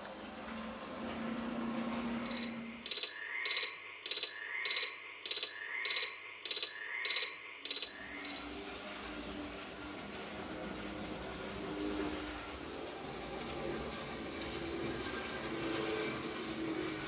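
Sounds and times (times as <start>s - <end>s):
high-pitched animal chirping call: 2.3s - 8.4s.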